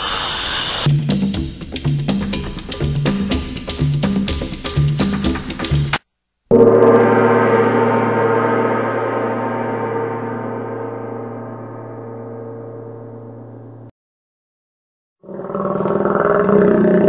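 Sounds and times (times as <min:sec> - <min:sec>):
large gong ringing: 0:06.5 - 0:13.9.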